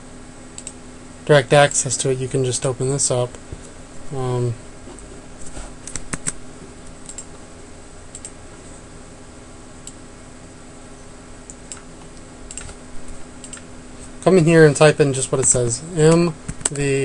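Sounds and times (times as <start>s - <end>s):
faint hum: 0.0s - 17.0s
mouse and keyboard clicks: 5.8s - 6.4s, 7.0s - 7.3s, 11.5s - 12.8s.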